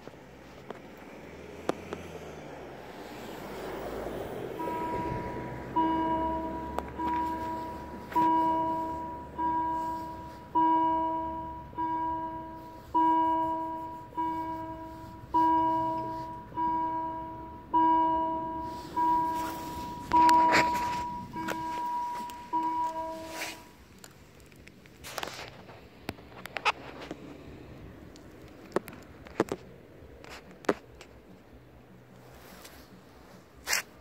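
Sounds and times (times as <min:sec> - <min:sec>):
level crossing warning bell: 0:04.5 - 0:23.8.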